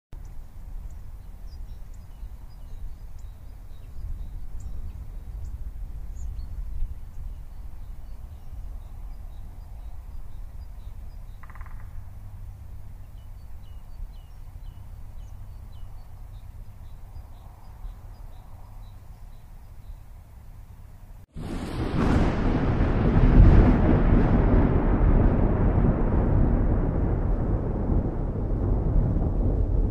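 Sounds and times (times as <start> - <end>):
high bird chirps: 0.2 - 12.1
wind rumbling on microphone: 0.2 - 20.7, 21.3 - 29.9.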